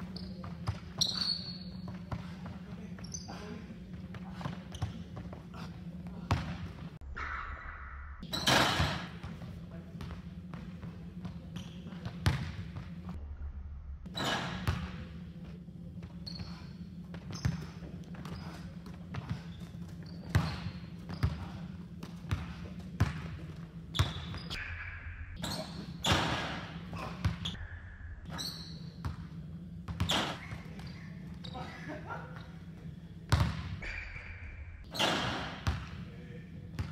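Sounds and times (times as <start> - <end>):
low hum in gym: 0.0 - 36.9
basketball bouncing on hardwood floor: 22.3 - 23.2, 33.3 - 33.7.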